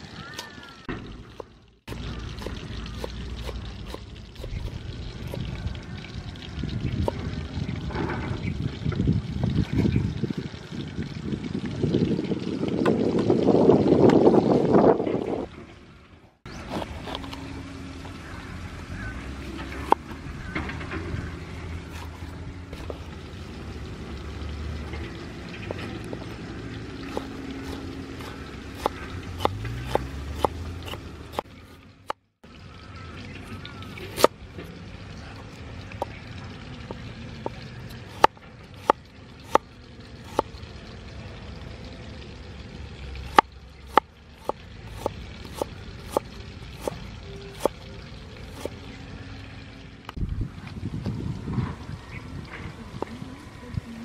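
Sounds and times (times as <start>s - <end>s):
knife chopping on wooden board: 21.9s - 23.0s, 27.1s - 31.4s.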